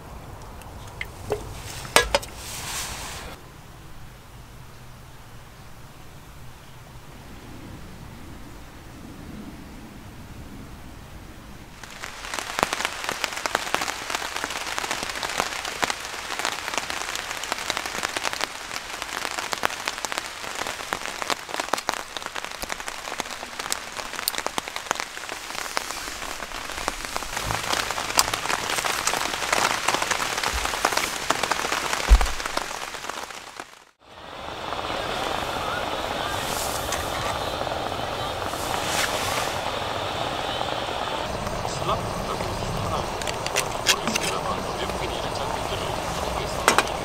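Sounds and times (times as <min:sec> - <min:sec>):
rain pattering: 0:00.0 - 0:03.4, 0:10.8 - 0:47.0
low thump: 0:32.1 - 0:32.5.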